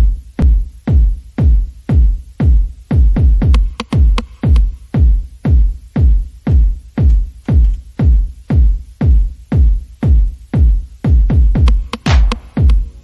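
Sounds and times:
electronic music with kick drum: 0.0s - 13.0s.

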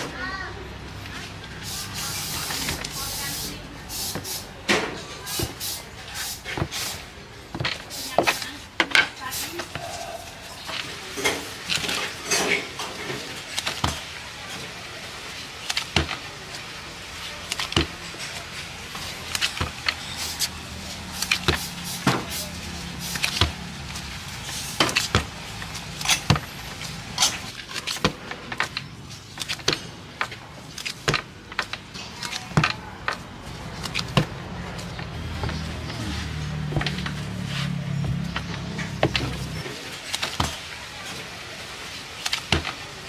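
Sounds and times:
utensils clinking on pans: 7.7s - 14.8s.

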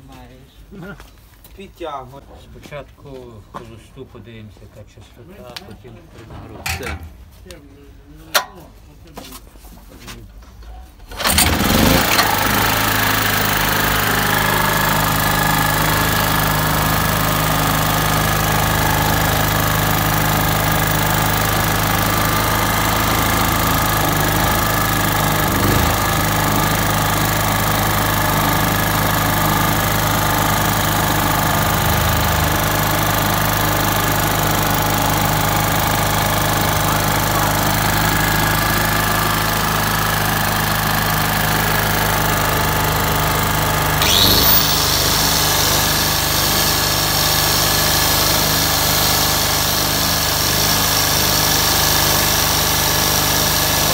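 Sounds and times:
generator engine running: 11.1s - 53.9s.

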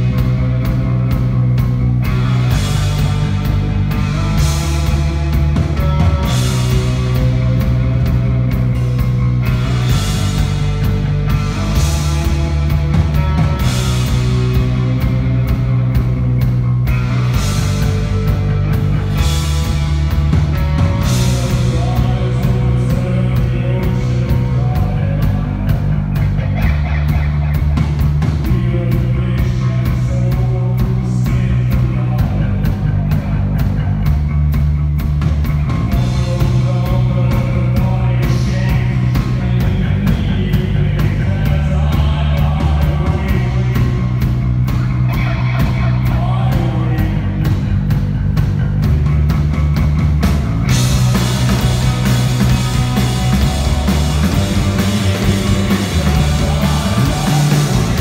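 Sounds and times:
bass guitar: 0.0s - 58.0s
drum kit beat: 0.0s - 58.0s
electric guitar: 0.0s - 58.0s
person singing: 20.6s - 27.6s, 36.0s - 44.2s, 51.4s - 58.0s.

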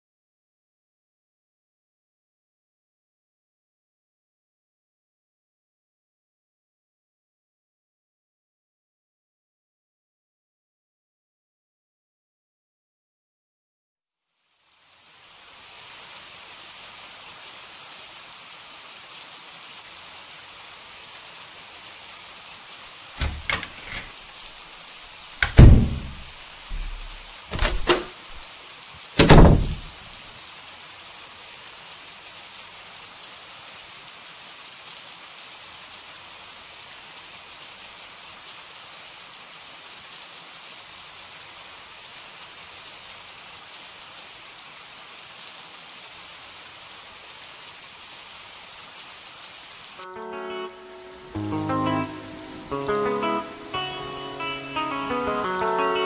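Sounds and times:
steady rain hiss: 14.2s - 56.0s
door latch clicks: 23.2s - 24.1s, 25.4s - 28.1s, 29.2s - 30.0s
door thumping shut: 23.2s - 24.2s, 25.4s - 28.4s, 29.2s - 30.0s.

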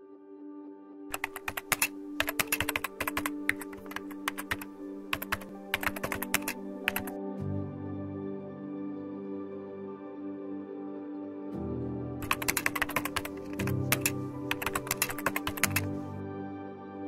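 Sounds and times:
soft ambient music: 0.0s - 17.0s
rapid keyboard clicks: 1.1s - 7.1s, 12.2s - 16.1s.

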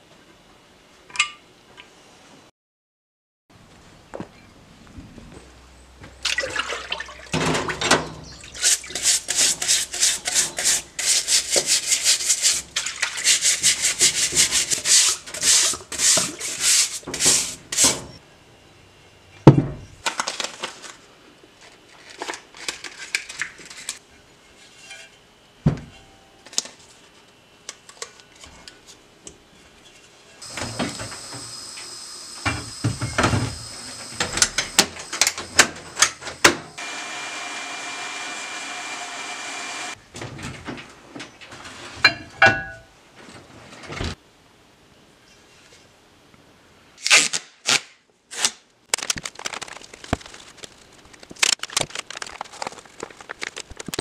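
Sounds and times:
rag rubbing: 8.6s - 17.9s
machine hum with high whine: 24.0s - 40.0s.

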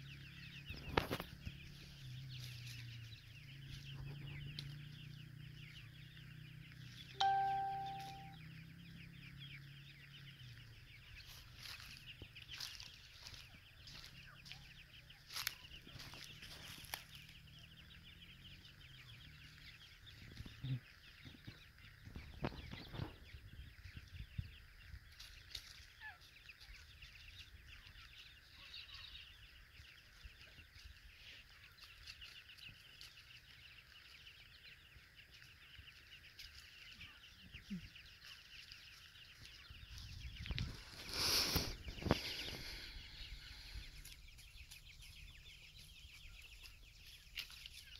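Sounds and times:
chicks peeping: 0.0s - 47.9s
ticks and taps on leaf litter: 0.7s - 4.9s, 6.1s - 8.4s, 10.4s - 17.8s, 25.1s - 28.7s, 29.6s - 42.8s, 44.0s - 47.9s.

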